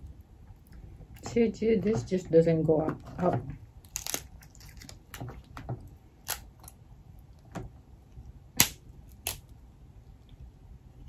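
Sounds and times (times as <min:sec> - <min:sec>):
crab shells cracking: 0:03.8 - 0:07.5, 0:08.6 - 0:09.6.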